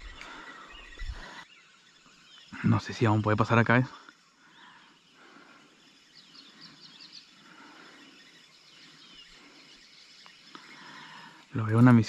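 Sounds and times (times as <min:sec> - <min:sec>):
bird twittering: 0:00.0 - 0:12.0.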